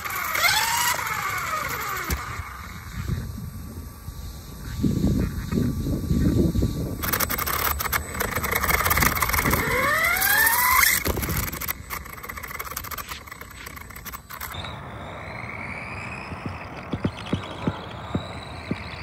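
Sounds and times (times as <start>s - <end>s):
electric motor and gears whining: 0.0s - 19.0s
wind and road rumble: 4.5s - 19.0s.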